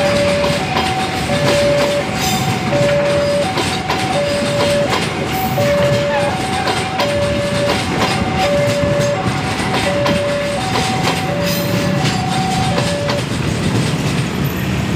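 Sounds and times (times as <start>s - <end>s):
two-tone electronic alarm: 0.0s - 13.4s
train wheels clicking over rail joints: 0.0s - 14.9s.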